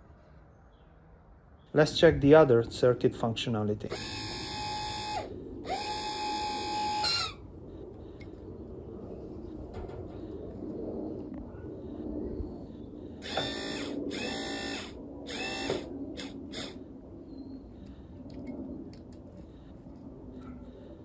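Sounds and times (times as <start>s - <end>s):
electric pump motor humming: 3.9s - 7.4s, 13.2s - 16.8s
motor whining bursts: 3.9s - 7.4s, 13.2s - 16.8s.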